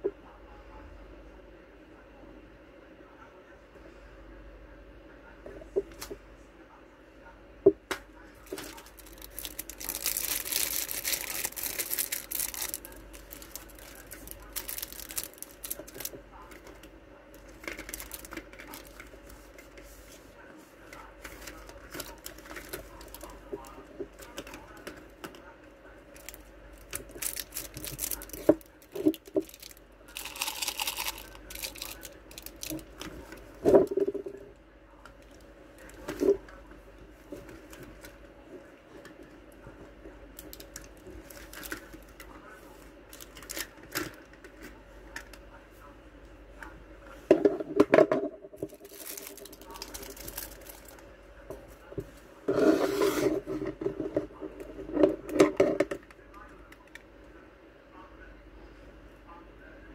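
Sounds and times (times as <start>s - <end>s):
plastic wrapping crinkling: 8.4s - 19.2s, 21.3s - 25.4s, 26.2s - 34.0s, 40.4s - 42.2s, 43.1s - 44.2s, 48.6s - 51.0s.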